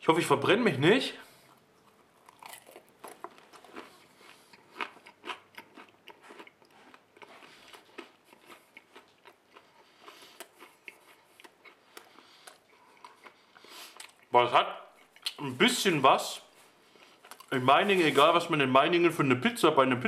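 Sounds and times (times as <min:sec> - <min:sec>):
man chewing food: 0:01.2 - 0:14.3, 0:14.9 - 0:15.4, 0:16.5 - 0:17.6.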